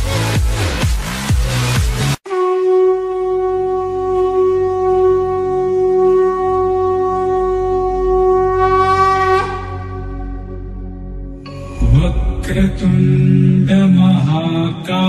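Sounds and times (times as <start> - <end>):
conch shell blown: 2.2 - 11.8.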